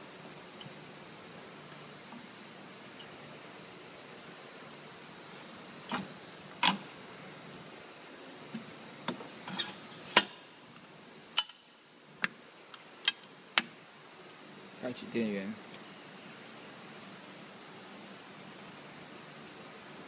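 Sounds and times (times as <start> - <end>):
metallic clicks and clanks: 5.9 - 6.8, 11.4 - 11.7.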